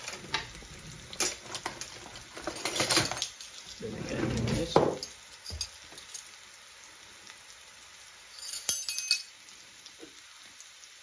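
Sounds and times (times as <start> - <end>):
meat sizzling in a pan: 0.0 - 11.0
sharp clink: 8.4 - 9.3.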